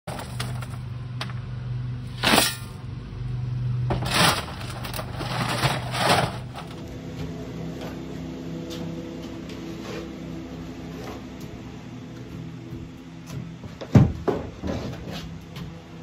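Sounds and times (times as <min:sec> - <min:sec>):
steady low hum: 0:00.1 - 0:16.0
shovel scraping into gravel: 0:03.9 - 0:06.8.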